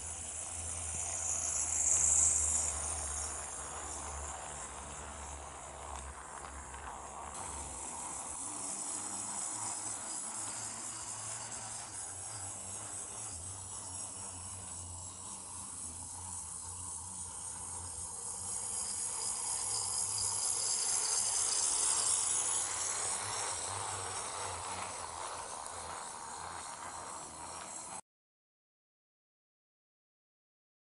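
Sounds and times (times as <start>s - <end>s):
toy train motor whirring: 0.0s - 28.0s.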